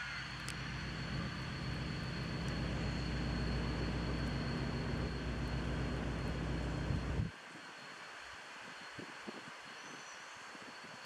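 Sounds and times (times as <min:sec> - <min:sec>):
diesel locomotive engine running: 0:00.0 - 0:07.3
thin high whine: 0:00.0 - 0:09.0.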